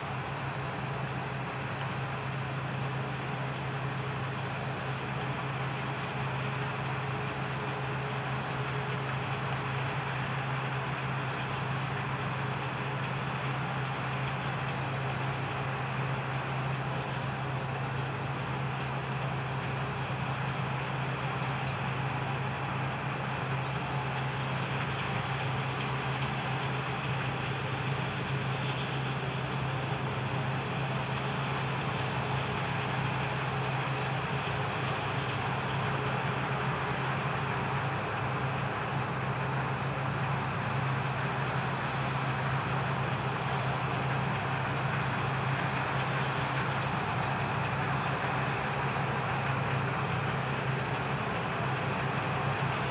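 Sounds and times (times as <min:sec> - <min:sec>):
combine harvester running: 0:00.0 - 0:52.9.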